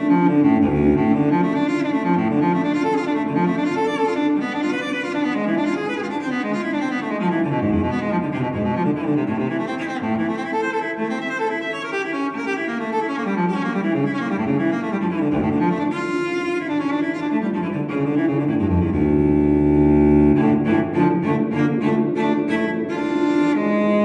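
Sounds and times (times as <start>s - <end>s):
low bowed strings music: 0.0s - 24.0s.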